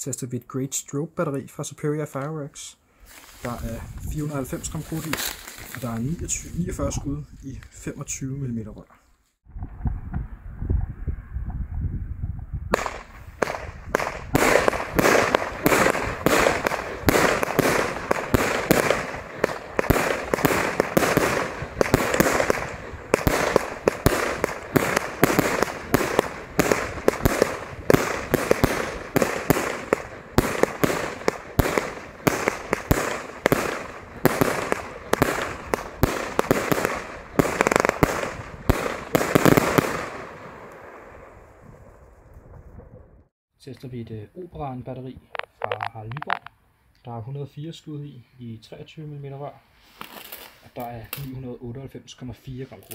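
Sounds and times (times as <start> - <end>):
firework stars crackling: 3.1 - 7.0, 12.7 - 43.0, 45.3 - 46.5, 49.9 - 51.4
firework launch thumps and bursts: 12.7 - 40.9.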